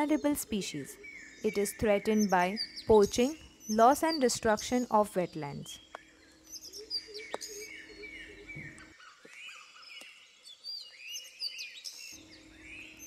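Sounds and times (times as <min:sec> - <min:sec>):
birds chirping and calling: 0:00.0 - 0:13.0.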